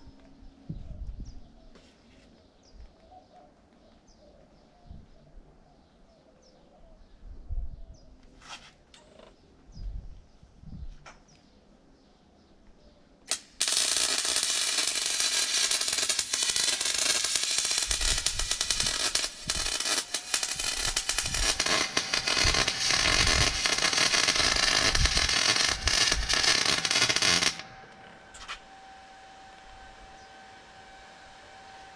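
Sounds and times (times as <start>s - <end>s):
welder sizzling crackle: 13.3s - 30.8s.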